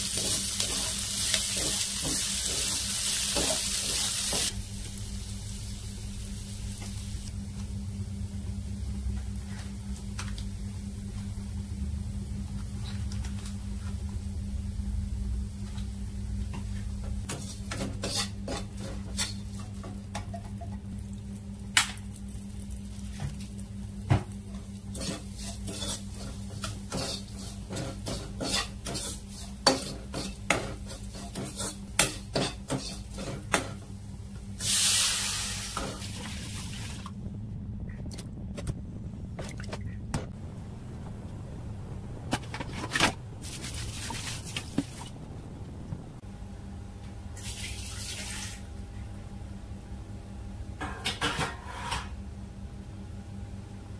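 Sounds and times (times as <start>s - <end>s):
liquid hissing in hot pan: 0.0s - 7.2s, 34.6s - 37.0s
onions frying in oil: 0.0s - 10.7s, 17.2s - 37.1s, 47.4s - 48.8s
low steady hum: 0.0s - 53.9s
spoon scraping pan: 24.9s - 33.8s.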